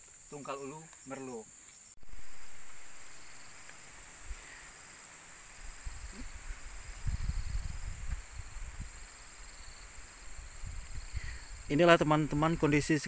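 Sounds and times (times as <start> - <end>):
high-pitched insect buzz: 0.0 - 13.0
low rumbling on microphone: 5.6 - 9.1.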